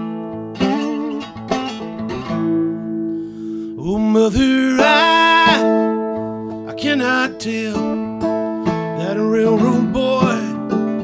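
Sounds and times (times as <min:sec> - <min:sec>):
acoustic guitar playing: 0:00.0 - 0:11.0
man singing: 0:03.8 - 0:06.0, 0:06.6 - 0:08.1, 0:08.9 - 0:11.0.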